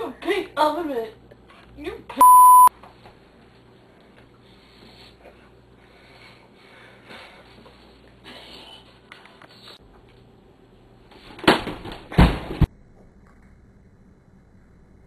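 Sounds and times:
censor bleep: 2.2s - 2.7s.

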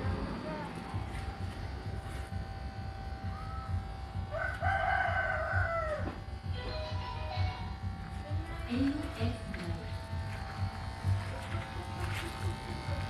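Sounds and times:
electric hair clippers humming: 0.0s - 13.0s
rooster crowing: 4.3s - 6.2s.

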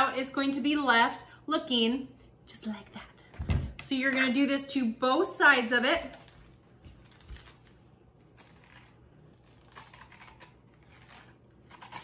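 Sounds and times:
metal spoon scraping squash: 5.6s - 12.0s.

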